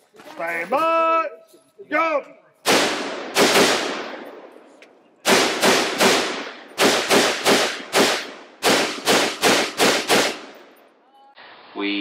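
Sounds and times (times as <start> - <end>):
rifle shots echoing: 2.6 - 4.6, 5.2 - 10.8.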